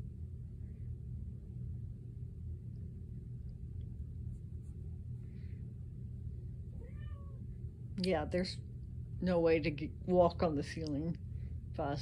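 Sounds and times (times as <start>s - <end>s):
low room hum: 0.0s - 12.0s
cat meowing: 6.7s - 7.4s.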